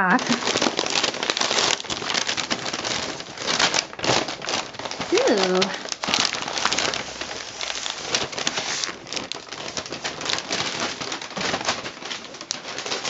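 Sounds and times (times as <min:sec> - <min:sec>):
paper and plastic packaging crinkling: 0:00.0 - 0:13.0.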